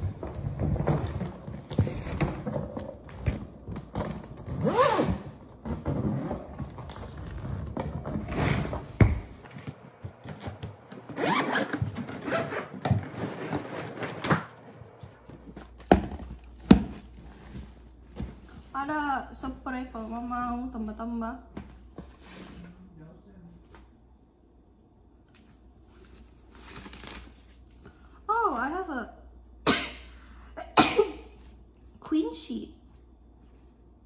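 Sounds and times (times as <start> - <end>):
rustling of contents: 0.0 - 4.8, 5.5 - 18.8
suitcase zipper rasping: 0.2 - 8.9, 11.1 - 14.3.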